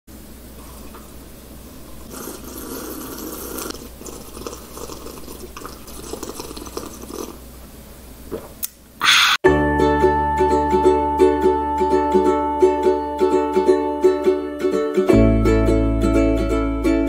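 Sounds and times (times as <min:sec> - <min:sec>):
low steady hum: 0:00.1 - 0:17.0
person sipping and swallowing: 0:02.0 - 0:07.4.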